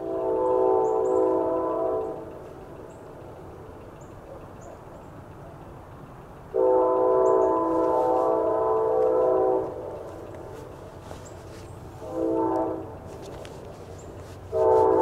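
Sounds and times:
locomotive air horn chord: 0.0s - 2.4s, 6.5s - 13.6s, 14.4s - 15.0s.

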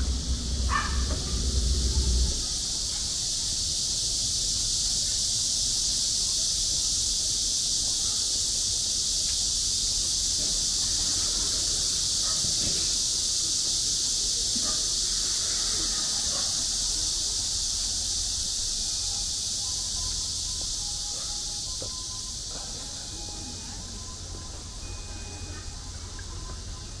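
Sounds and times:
low rumble: 0.0s - 2.9s
cicadas buzzing: 0.0s - 27.0s.

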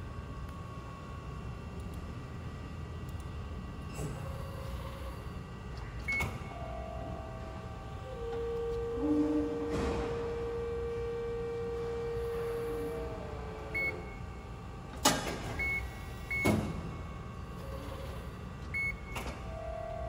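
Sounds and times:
hydraulic press hum: 3.0s - 20.0s
short electronic beeps: 13.8s - 14.2s, 18.8s - 19.1s.

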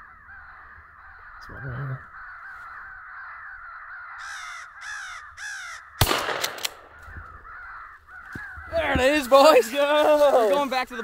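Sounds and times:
crows cawing: 0.0s - 11.0s
shotgun blast: 6.0s - 7.0s
small cracks: 6.0s - 7.1s.

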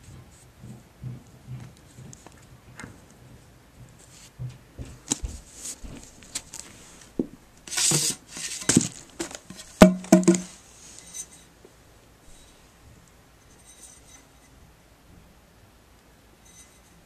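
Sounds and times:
plastic bag rustling: 5.0s - 11.0s
sharp knocks: 8.7s - 10.6s
metal tube ringing: 16.4s - 17.0s.

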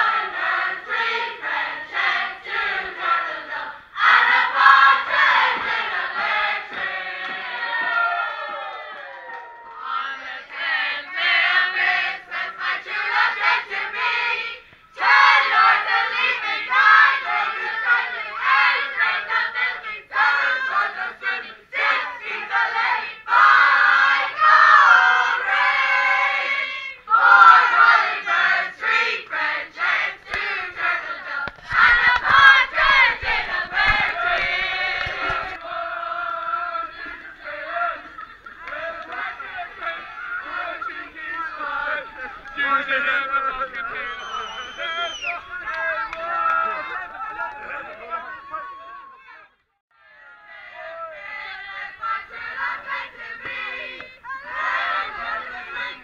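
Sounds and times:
group singing and shouting: 0.0s - 56.0s.

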